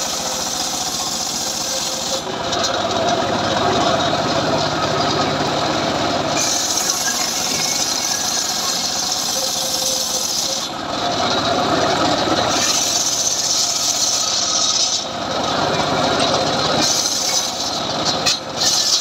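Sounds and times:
high rasping hiss of saw cut: 0.0s - 2.2s, 6.4s - 10.8s, 12.5s - 15.1s, 16.8s - 17.8s, 18.6s - 19.0s
circular saw running: 0.0s - 19.0s.

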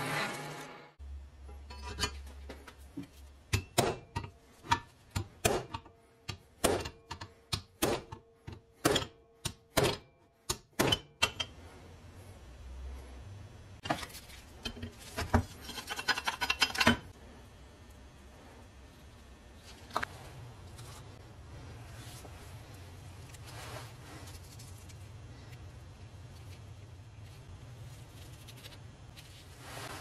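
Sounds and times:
hammer striking metal punch: 3.5s - 11.5s.

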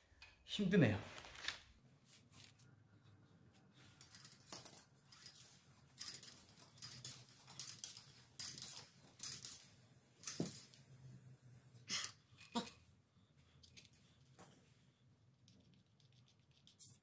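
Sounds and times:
bicycle wheel clicks and rustles: 4.0s - 10.8s.

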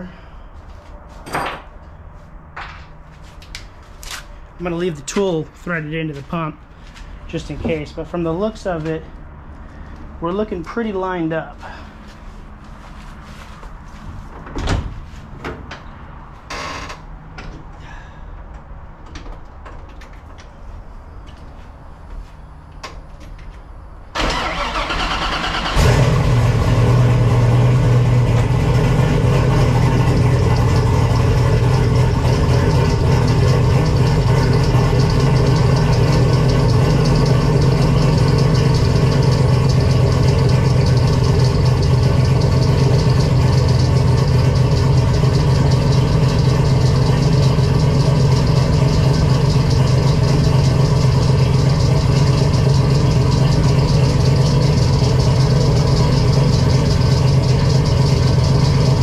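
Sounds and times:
car engine starting and idling: 22.7s - 59.0s.

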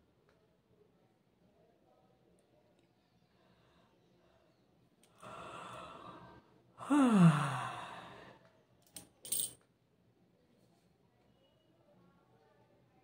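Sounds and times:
short breathy sounds: 5.2s - 8.4s
woman yawning: 6.8s - 8.3s.

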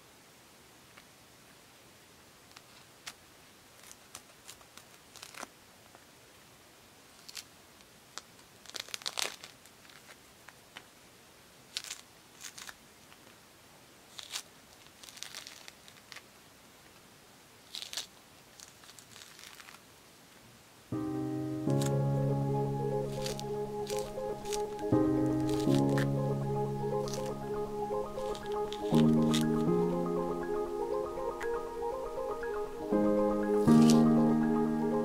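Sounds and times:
orange peel tearing: 3.8s - 5.5s, 8.2s - 10.2s, 11.7s - 12.8s, 14.1s - 16.3s, 17.7s - 19.8s, 22.8s - 29.7s.

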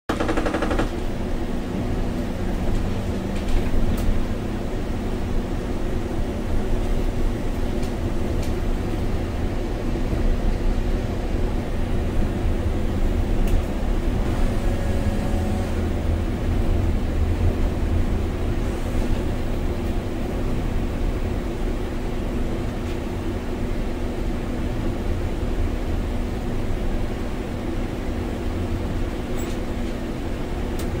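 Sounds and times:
sharp clicks: 0.1s - 1.0s
bus engine drone: 0.1s - 31.0s
road rumble: 0.1s - 31.0s.

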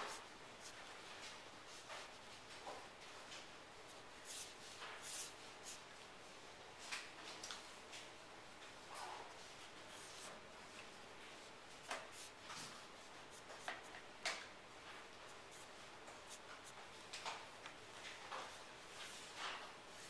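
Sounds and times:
marker scratching on paper: 0.0s - 0.8s, 3.9s - 5.8s, 9.3s - 10.4s, 11.8s - 12.7s, 13.3s - 14.0s, 15.3s - 16.8s.

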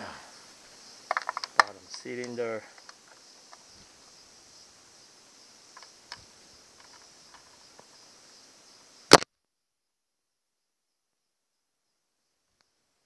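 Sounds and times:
faint steady hiss: 0.0s - 13.0s
sharp loud click: 9.1s - 9.3s.

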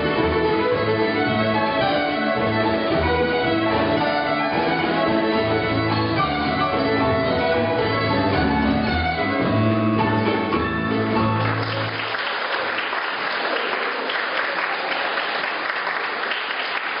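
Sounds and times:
fiddle and guitar tune: 0.0s - 11.9s
applause: 11.4s - 17.0s.

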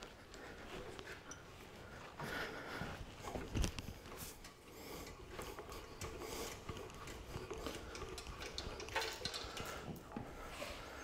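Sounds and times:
crank mechanism clicking: 4.4s - 10.1s
mechanical clatter: 5.0s - 10.0s.

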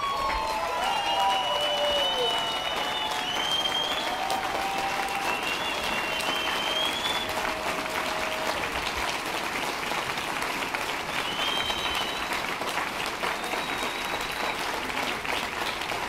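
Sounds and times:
high whistles: 0.0s - 7.4s, 11.2s - 12.4s, 13.3s - 14.7s
audience applauding: 0.0s - 16.0s.

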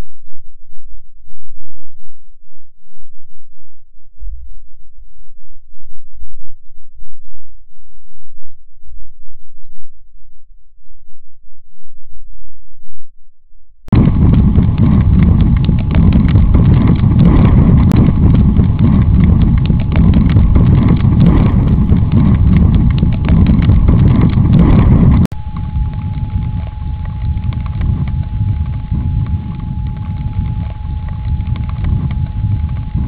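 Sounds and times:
faint low rumble: 0.0s - 33.0s
wind buffeting microphone: 13.9s - 33.0s.

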